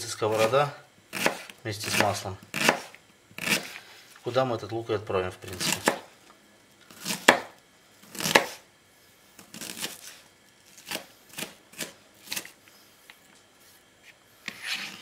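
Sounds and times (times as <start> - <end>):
knife chopping on plastic board: 1.1 - 3.8, 5.6 - 6.1, 7.0 - 8.6.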